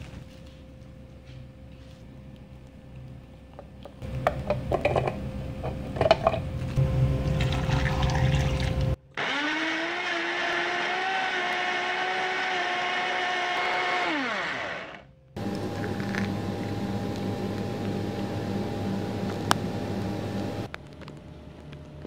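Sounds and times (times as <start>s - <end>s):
steady low hum: 0.0s - 9.2s, 14.2s - 22.0s
blender motor whining: 9.2s - 20.7s.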